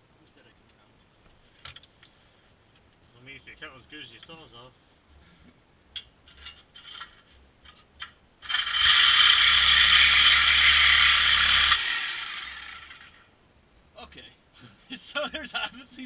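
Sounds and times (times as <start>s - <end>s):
reciprocating saw cutting metal pipe: 8.4s - 13.1s.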